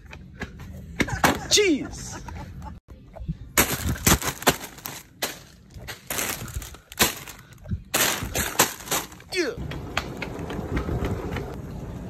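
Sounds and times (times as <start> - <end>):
plastic packaging crinkling: 3.6 - 9.3
knocks and clatters in cart: 8.0 - 11.6.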